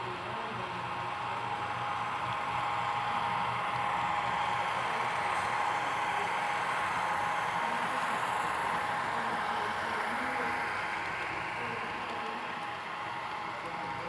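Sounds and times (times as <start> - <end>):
model train diesel engine sound: 0.0 - 14.0.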